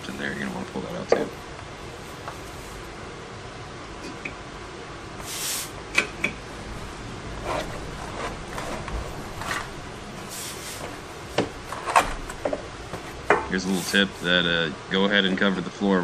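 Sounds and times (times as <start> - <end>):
soft rubbing: 1.9 - 3.0, 6.8 - 11.9, 12.8 - 14.6.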